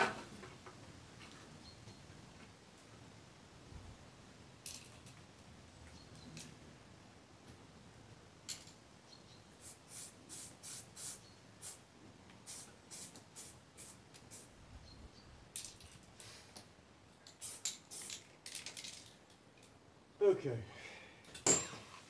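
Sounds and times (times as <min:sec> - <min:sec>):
spray paint can hissing: 0:09.6 - 0:11.8, 0:12.4 - 0:14.5, 0:17.3 - 0:18.7.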